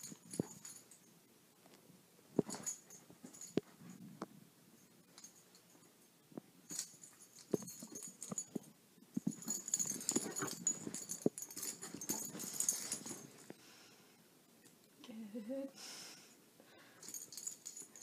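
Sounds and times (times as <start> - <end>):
dog paws thumping on carpet: 7.4 - 13.5
dog breathy scuffling: 9.3 - 13.5.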